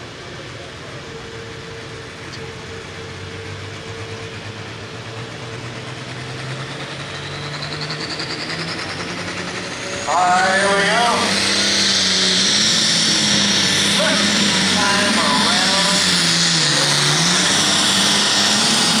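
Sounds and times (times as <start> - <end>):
high turbo whine: 0.0 - 19.0
diesel engine revving: 1.8 - 19.0.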